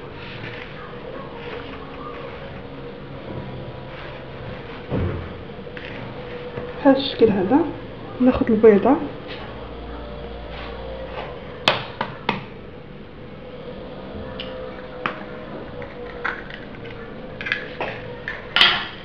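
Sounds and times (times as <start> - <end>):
egg cracking: 15.8 - 19.0.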